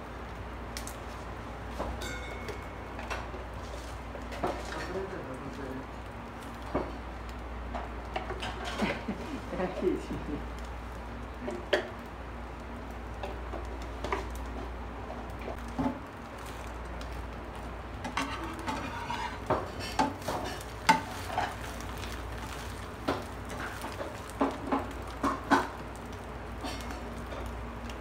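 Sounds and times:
egg sizzling: 2.6 - 28.0
metal spatula scraping a pan: 18.0 - 21.6.

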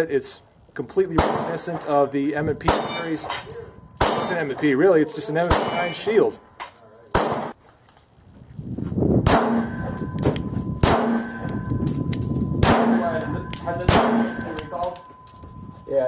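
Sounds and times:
pistol shots: 1.2 - 1.8, 2.6 - 4.7, 5.4 - 6.1, 7.1 - 7.6, 9.2 - 11.5, 12.6 - 14.7
bullets clanging on steel targets: 2.6 - 7.5, 9.3 - 16.0.

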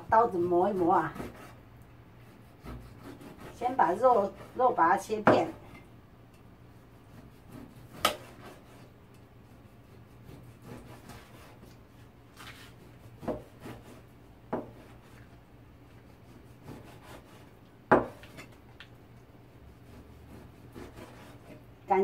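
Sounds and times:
cleaver slicing meat: 2.2 - 4.6, 7.1 - 18.6, 19.8 - 21.6
blade knocking on cutting board: 14.5 - 14.8, 17.9 - 18.4.

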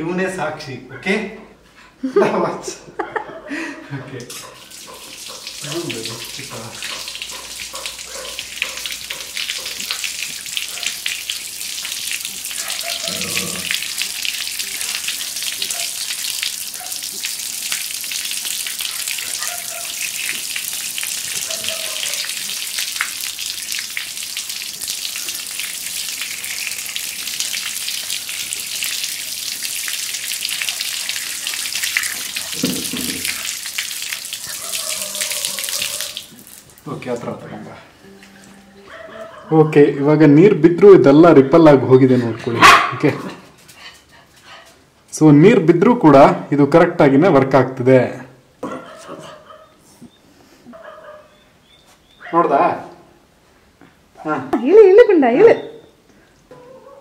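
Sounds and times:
tap water splashing: 4.2 - 37.3.

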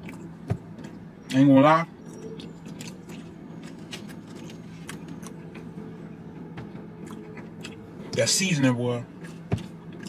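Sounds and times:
person chewing fries: 0.0 - 1.0, 2.0 - 8.0, 9.1 - 10.0
car hum: 0.0 - 10.0.

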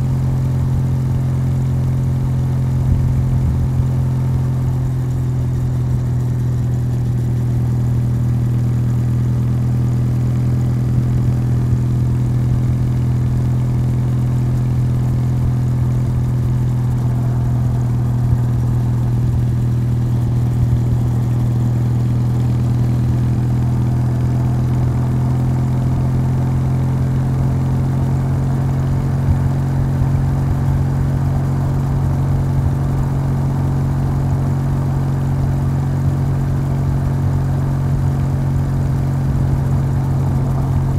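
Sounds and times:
motorcycle engine running: 0.0 - 40.9.

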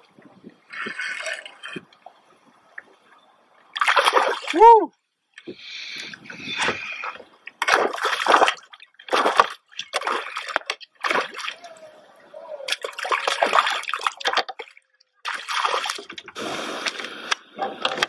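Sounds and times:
fish splashing in water: 3.7 - 4.6, 6.4 - 11.9, 12.6 - 17.0.

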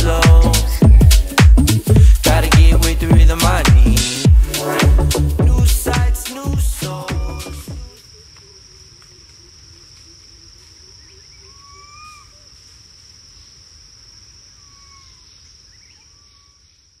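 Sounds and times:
low rumble: 0.0 - 6.7
crickets trilling: 6.2 - 17.0.

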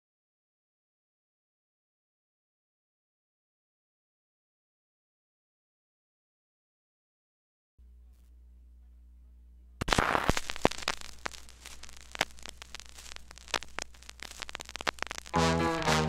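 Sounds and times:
steady low hum: 7.8 - 16.0
vinyl crackle and pops: 7.8 - 16.0
stylus dropping onto vinyl record: 9.8 - 16.0
music: 15.3 - 16.0.

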